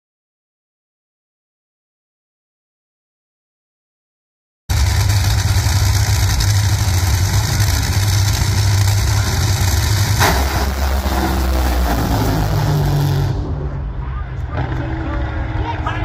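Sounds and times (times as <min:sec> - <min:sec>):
drag racing car engines: 0:04.7 - 0:16.0.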